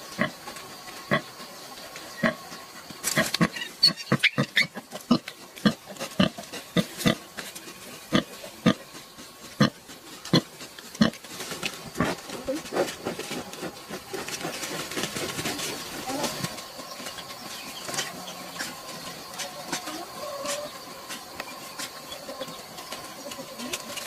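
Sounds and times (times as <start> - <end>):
piglets squealing: 3.5 - 4.8.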